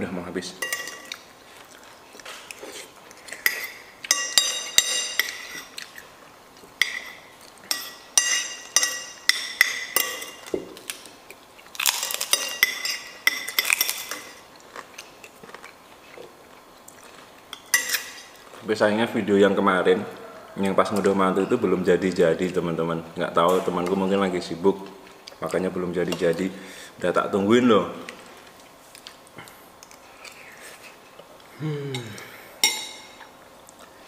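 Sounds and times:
cutlery clinking on plates: 0:06.8 - 0:10.6, 0:32.6 - 0:33.2.

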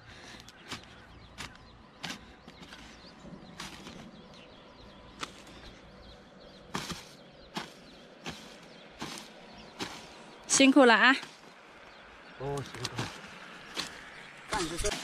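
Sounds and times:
hoe chopping into soil: 0:00.6 - 0:04.2, 0:05.1 - 0:05.6, 0:06.7 - 0:10.2, 0:12.6 - 0:15.0.

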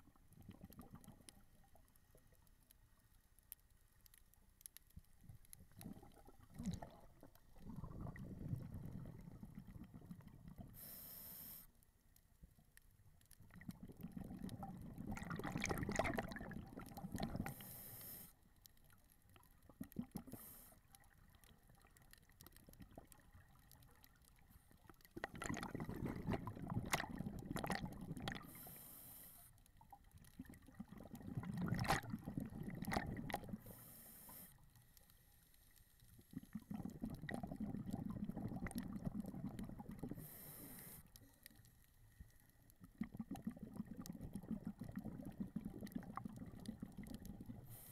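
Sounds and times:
exhaled bubbles gurgling: 0:00.0 - 0:01.8, 0:05.7 - 0:10.9, 0:13.4 - 0:17.7, 0:19.4 - 0:20.4, 0:21.0 - 0:28.8, 0:29.8 - 0:33.8, 0:36.2 - 0:41.0, 0:42.8 - 0:47.9
diver breathing through regulator: 0:10.7 - 0:11.7, 0:17.5 - 0:18.4, 0:40.1 - 0:41.2.

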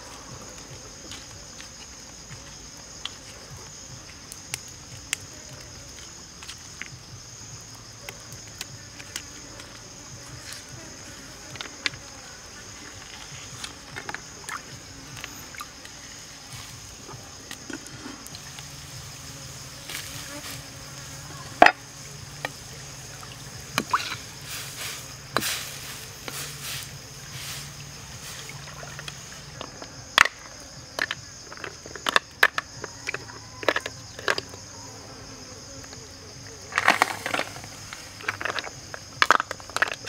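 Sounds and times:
high insect chorus: 0:00.0 - 0:40.0.

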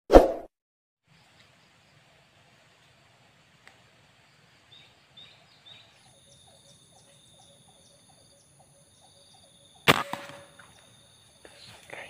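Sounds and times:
high insect trill: 0:04.2 - 0:12.0
short insect chirps: 0:04.2 - 0:12.0.

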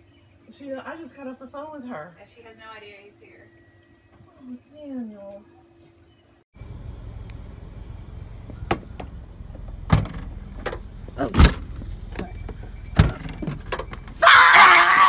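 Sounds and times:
knocks and thumps on car: 0:08.5 - 0:14.1
person crying out: 0:14.2 - 0:15.0.

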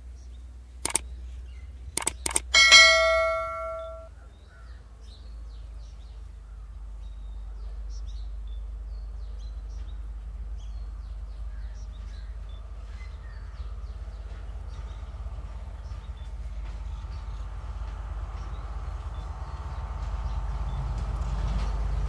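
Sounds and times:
birds chirping: 0:00.2 - 0:04.1
struck bell ringing: 0:02.0 - 0:04.1.

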